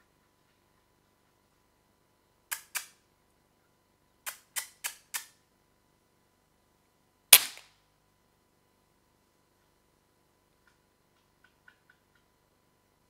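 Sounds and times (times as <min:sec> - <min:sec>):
airgun shot: 0:07.4 - 0:07.6.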